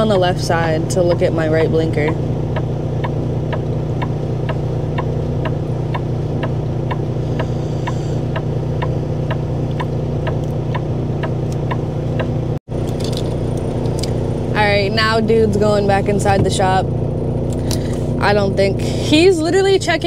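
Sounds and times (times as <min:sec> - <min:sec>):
truck engine idling: 0:00.0 - 0:20.0
turn-signal flasher clicking: 0:02.1 - 0:14.2.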